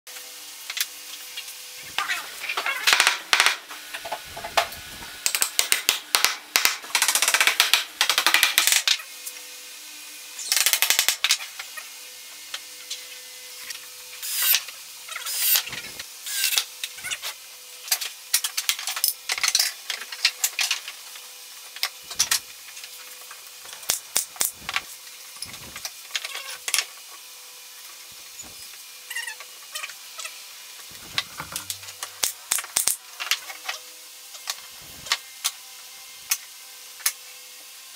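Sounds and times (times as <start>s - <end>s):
cordless drill driving screws: 14.2s - 14.6s
wooden parts knocking together: 31.0s - 31.9s.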